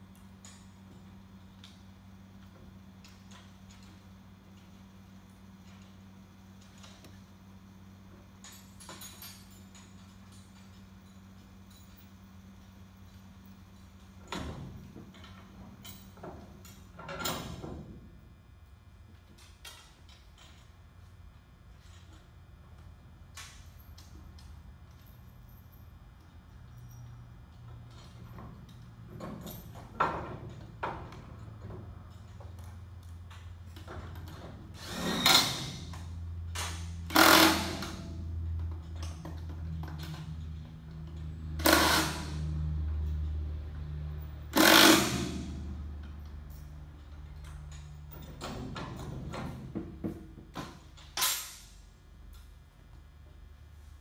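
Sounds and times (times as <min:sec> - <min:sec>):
power drill driving bolts: 0:34.8 - 0:35.8, 0:36.6 - 0:38.1, 0:41.6 - 0:42.4, 0:44.5 - 0:45.5.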